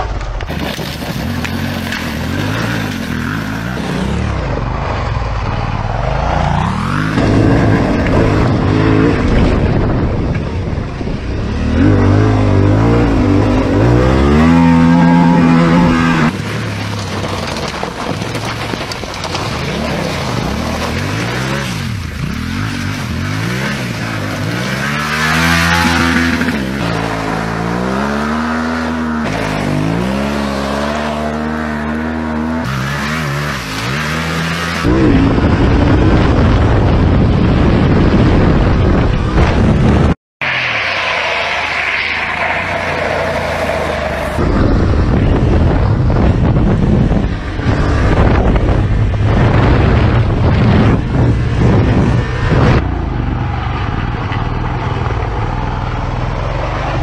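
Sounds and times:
motorcycle engine revving: 0:00.0 - 0:17.7, 0:19.3 - 0:40.2, 0:41.2 - 0:57.0
wind on microphone: 0:34.8 - 0:40.2, 0:44.3 - 0:55.9.

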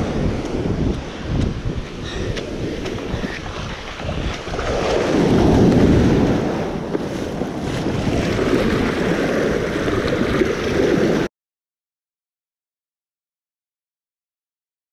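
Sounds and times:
surf washing in: 0:00.0 - 0:11.3
wind buffeting microphone: 0:00.0 - 0:11.3.

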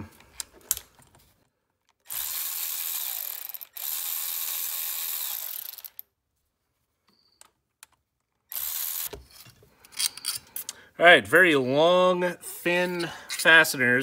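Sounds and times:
power drill running: 0:02.0 - 0:06.0, 0:08.5 - 0:09.2.

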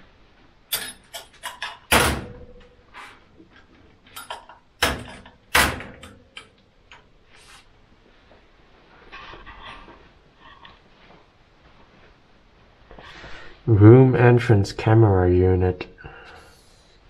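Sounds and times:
ringing metal clanks: 0:00.7 - 0:01.8
metal drawer clicks and knocks: 0:00.7 - 0:02.7, 0:04.2 - 0:06.5.

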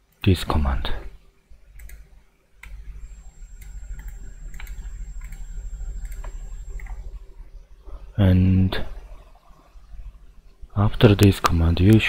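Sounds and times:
low steady hum: 0:00.0 - 0:12.0
keyboard and mouse clicks: 0:01.7 - 0:02.8, 0:03.6 - 0:07.0.

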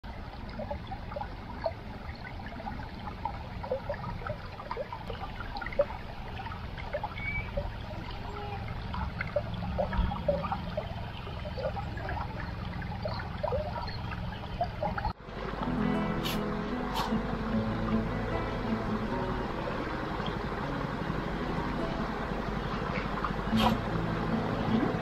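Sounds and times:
small water splashes: 0:00.0 - 0:25.0
river water babbling over stones: 0:00.1 - 0:25.0
steady low rumble: 0:00.1 - 0:25.0.

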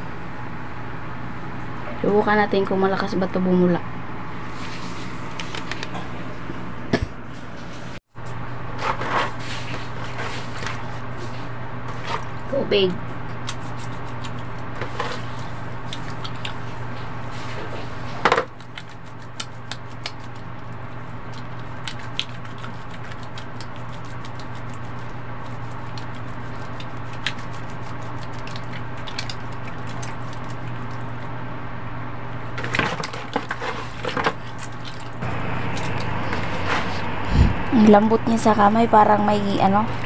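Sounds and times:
steady low hum: 0:00.0 - 0:40.0
wet hands lathering soap: 0:13.4 - 0:31.3, 0:33.0 - 0:36.9.

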